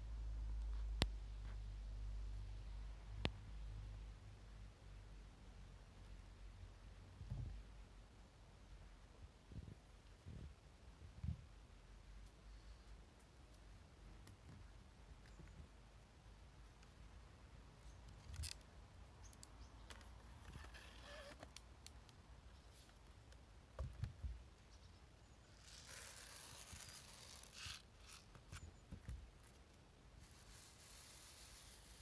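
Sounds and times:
soft rustling: 25.4 - 32.0.

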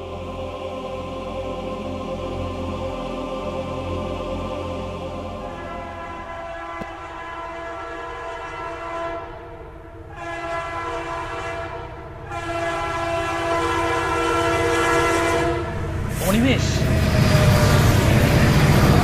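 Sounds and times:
passing train rumble: 0.0 - 19.0
train horn blasts: 5.4 - 16.0.

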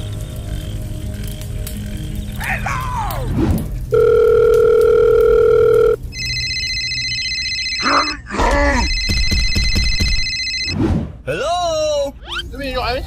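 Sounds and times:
electronic phone ringtone: 3.9 - 10.8
steady telephone beep: 4.0 - 8.2, 8.9 - 10.8.

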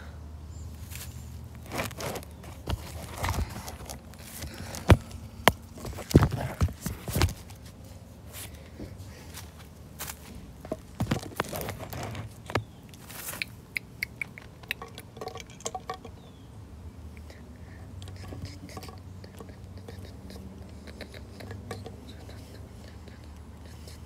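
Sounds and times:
plastic toy moved over gravel: 0.8 - 5.1, 9.4 - 13.4.

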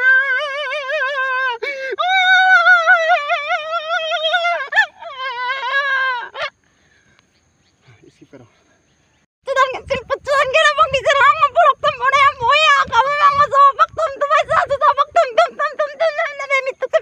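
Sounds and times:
high voice singing: 9.5 - 17.0.

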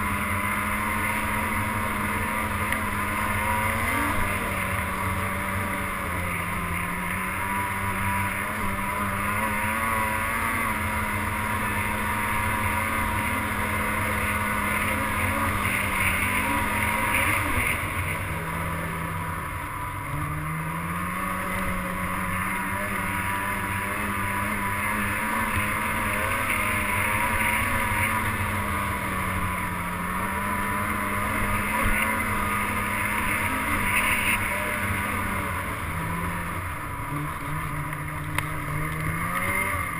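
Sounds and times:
snowmobile engine running: 0.0 - 39.9.

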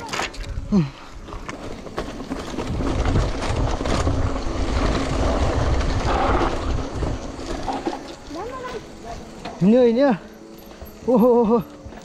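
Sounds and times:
bike rattling: 0.0 - 12.0
bike tyres crunching over leaves: 0.0 - 12.0
wind rumbling on microphone: 0.2 - 8.0.

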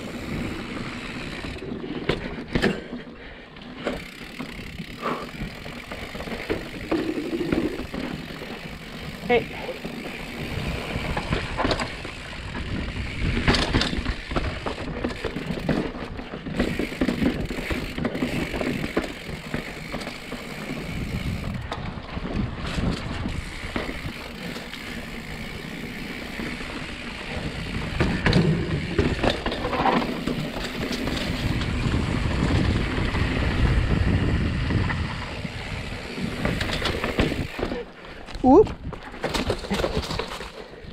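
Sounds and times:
bike rattling over bumps: 0.0 - 40.9
tyre rumble: 5.0 - 12.0, 36.3 - 40.7.

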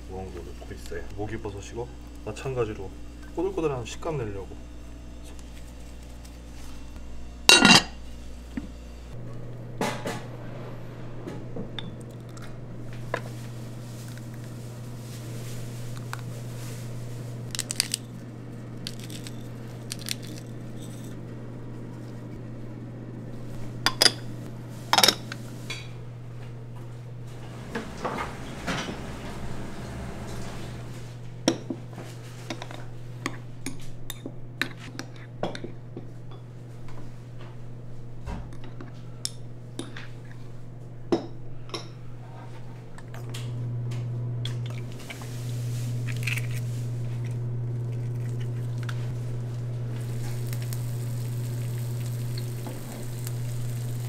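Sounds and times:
steady low hum: 0.0 - 54.0
dishes and utensils clinking: 7.5 - 8.0.

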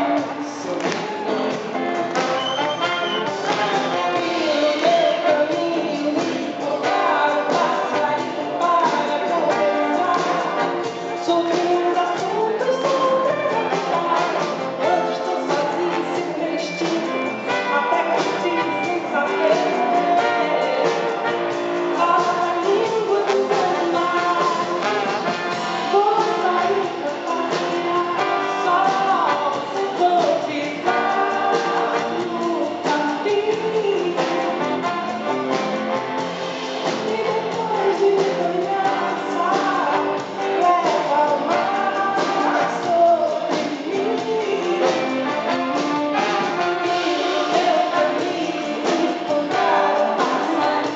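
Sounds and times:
instrumental accompaniment: 0.0 - 50.9
woman singing into microphone: 3.2 - 25.2, 25.8 - 35.5, 36.8 - 45.9, 46.6 - 50.9.

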